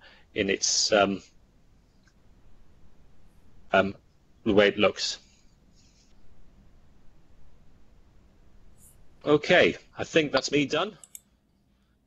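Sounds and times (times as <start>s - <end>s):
man speaking: 0.4s - 1.3s, 3.7s - 5.2s, 9.2s - 11.0s.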